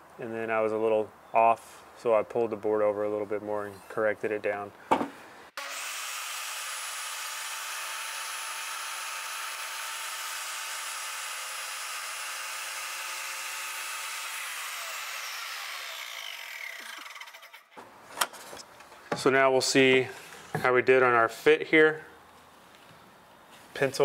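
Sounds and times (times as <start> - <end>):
table saw whining: 5.6 - 17.8.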